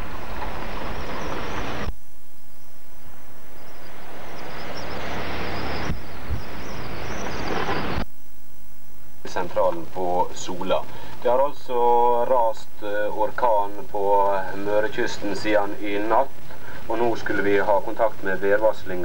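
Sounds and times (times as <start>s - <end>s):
strong wind buffeting microphone: 0.0s - 8.0s.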